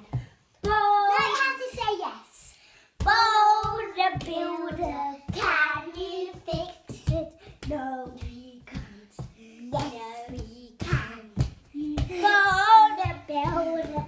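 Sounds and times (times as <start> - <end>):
girls singing: 0.6 - 2.0, 3.0 - 14.0
knocks and thumps: 3.0 - 14.0.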